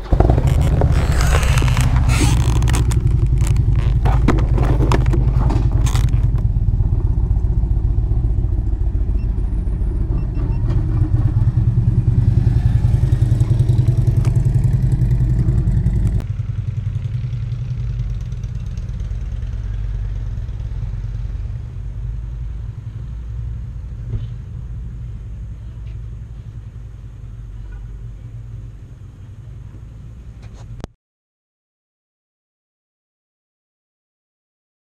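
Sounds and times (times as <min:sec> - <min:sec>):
motorcycle engine running: 0:00.0 - 0:22.4
road noise: 0:00.0 - 0:30.9.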